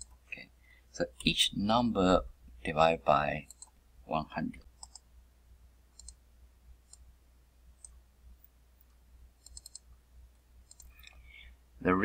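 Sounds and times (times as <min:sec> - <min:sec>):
faint low hum: 0:00.0 - 0:12.0
computer mouse clicks: 0:03.4 - 0:03.8, 0:04.7 - 0:05.1, 0:05.9 - 0:06.2, 0:06.9 - 0:07.1, 0:07.8 - 0:08.0, 0:08.8 - 0:09.9, 0:10.6 - 0:11.2.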